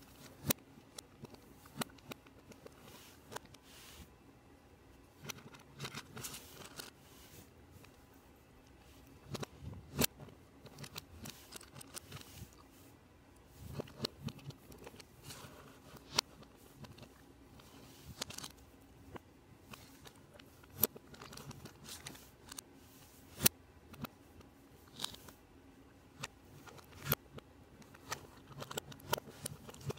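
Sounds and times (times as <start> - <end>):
plastic pieces rattling and scraping: 13.6 - 18.6, 19.6 - 22.6, 27.8 - 29.9.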